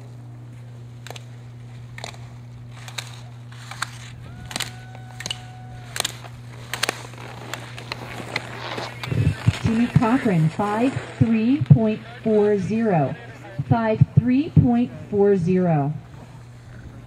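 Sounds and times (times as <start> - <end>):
steady low hum: 0.0 - 17.0
steady tone: 9.0 - 16.5.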